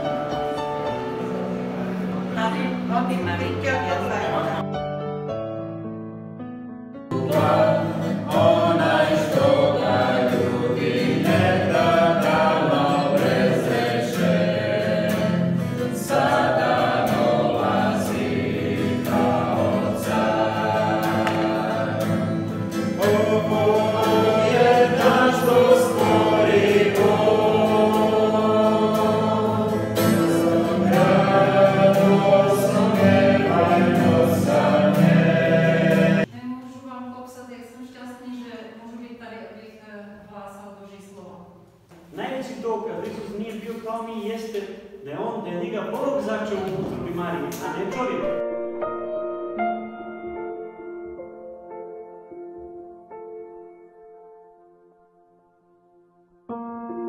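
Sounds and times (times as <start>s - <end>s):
strummed acoustic guitar: 7.1s - 36.3s
man and woman singing: 7.1s - 36.4s.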